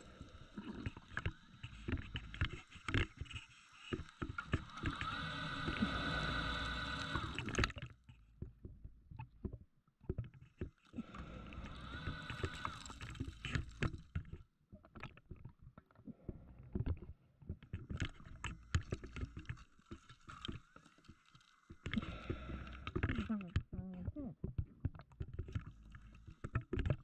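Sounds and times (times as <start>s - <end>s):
diver breathing through regulator: 0.0s - 7.7s, 11.0s - 13.9s, 21.8s - 23.3s
rushes of exhaled bubbles: 0.0s - 7.9s, 10.9s - 14.2s, 17.9s - 23.4s.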